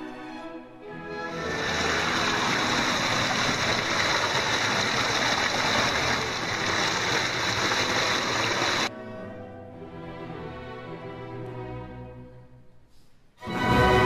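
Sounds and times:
stream rushing over ice and rocks: 1.3 - 8.9.

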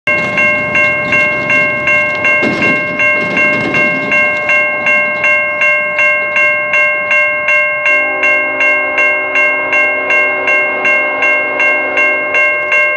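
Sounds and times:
crossing warning bell ringing: 0.0 - 12.9
locomotive horn: 7.8 - 12.7.

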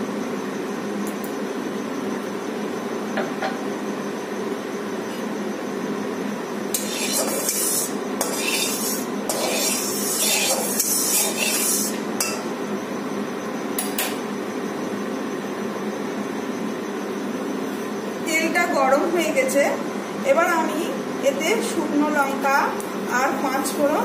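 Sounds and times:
metal spatula scraping metal pan: 6.7 - 12.0.

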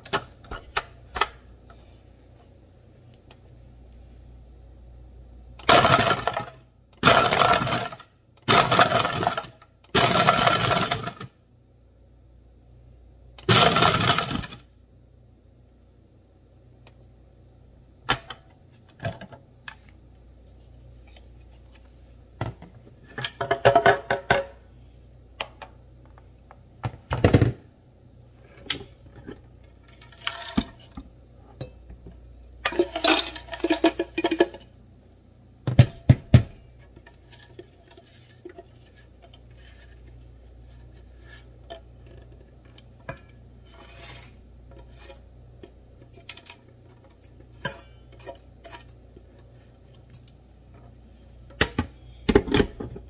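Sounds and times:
crushed ice rattling in blender jar: 5.6 - 11.3, 13.4 - 14.6, 32.7 - 34.7.

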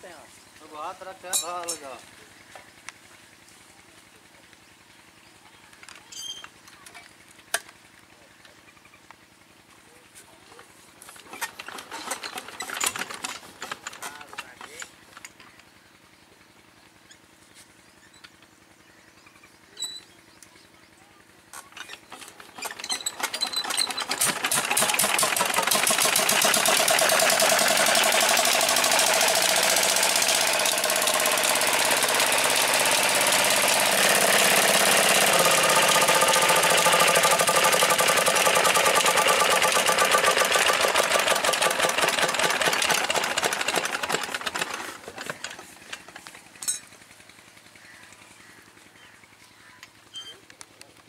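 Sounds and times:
diesel engine knocking: 23.7 - 48.8.

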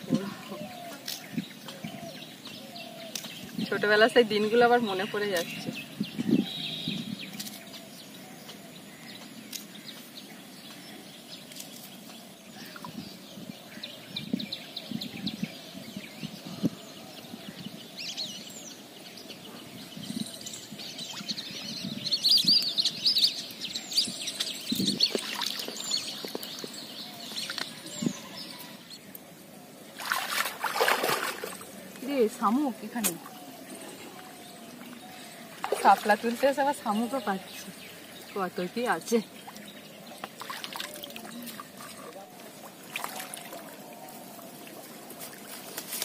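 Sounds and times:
birds chirping: 0.0 - 46.0
water sloshing from wading: 24.9 - 26.8, 30.0 - 32.4, 35.5 - 36.8, 39.4 - 45.9.

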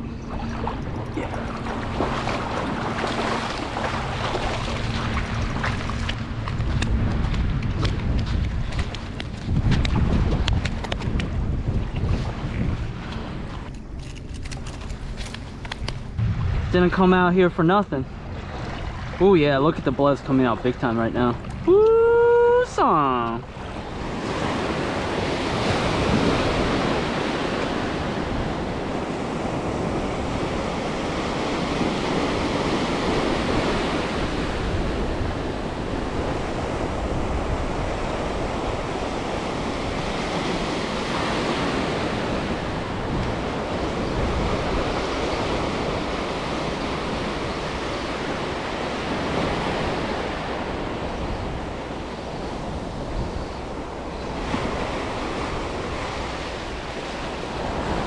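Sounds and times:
ocean surf washing ashore: 0.0 - 58.0
wind rumbling on microphone: 0.0 - 58.0.

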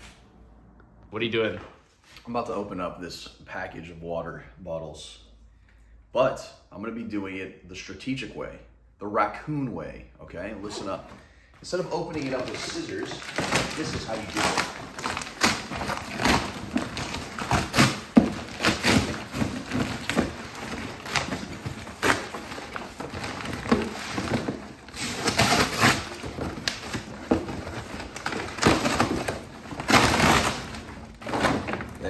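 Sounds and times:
cardboard box being torn open: 12.1 - 32.0
packing tape ripping: 12.1 - 32.0.

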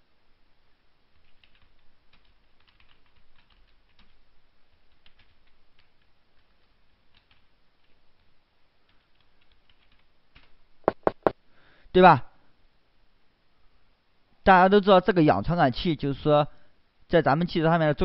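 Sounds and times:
faint keyboard typing: 1.1 - 11.4.

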